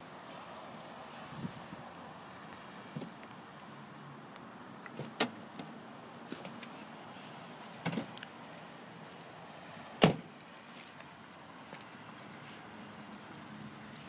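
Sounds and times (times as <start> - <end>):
car door slamming: 7.8 - 8.1, 10.0 - 10.3.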